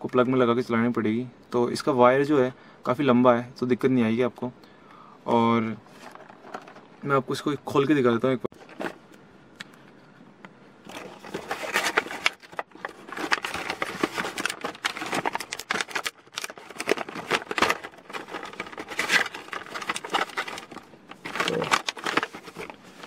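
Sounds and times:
packaging rustling: 5.8s - 6.9s, 8.6s - 9.0s, 10.8s - 23.0s.

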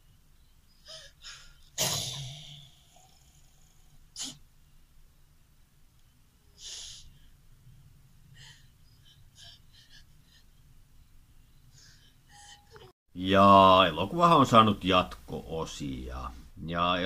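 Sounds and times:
short breathy sounds: 6.5s - 7.4s.

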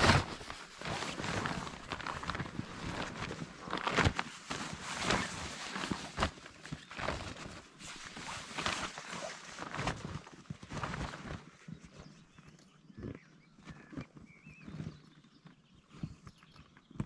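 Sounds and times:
inflatable boat rustling and thumping: 0.0s - 12.1s.

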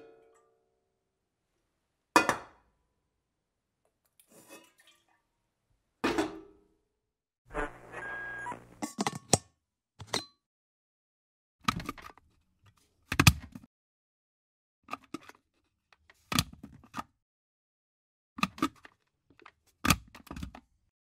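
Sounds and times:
plastic lid clicking open and shut: 18.4s - 20.6s.

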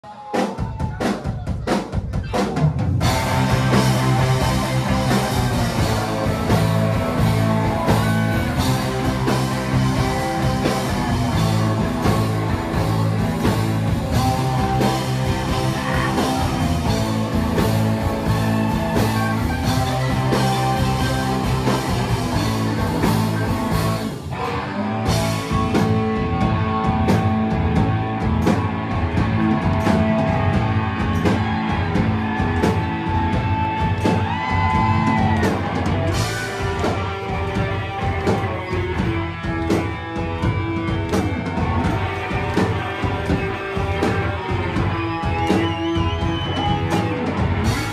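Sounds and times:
drum kit: 0.0s - 47.9s
electric guitars: 2.2s - 47.9s.

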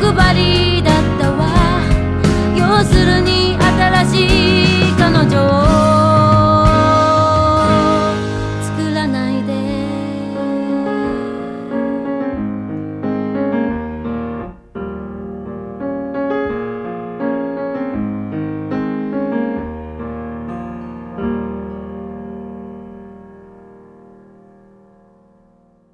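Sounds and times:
slow solo piano: 0.0s - 25.9s.

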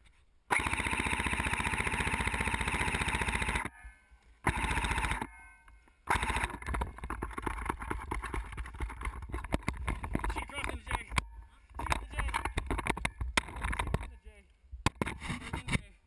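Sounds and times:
airsoft rifle automatic fire: 0.5s - 3.8s, 4.4s - 5.4s, 6.0s - 8.0s
irregular clicks and knocks: 1.6s - 14.2s, 14.8s - 15.9s.

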